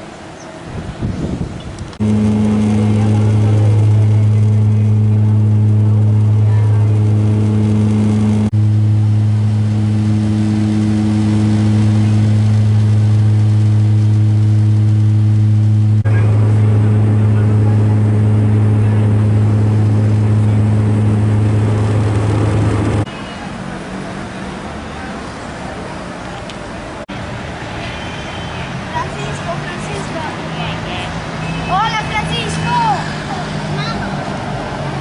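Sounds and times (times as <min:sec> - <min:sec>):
propeller airplane cabin drone: 0:01.8 - 0:23.1.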